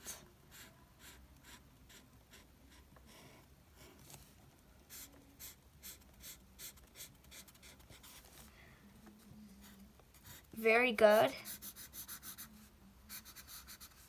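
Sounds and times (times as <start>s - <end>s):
marker strokes on paper: 0.0s - 3.2s, 4.9s - 8.4s, 9.6s - 14.0s.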